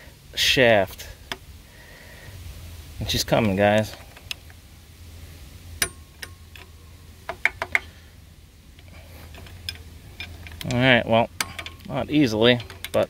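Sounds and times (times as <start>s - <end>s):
faint low hum: 0.0s - 13.0s
pry bar clicking on metal: 11.4s - 11.9s.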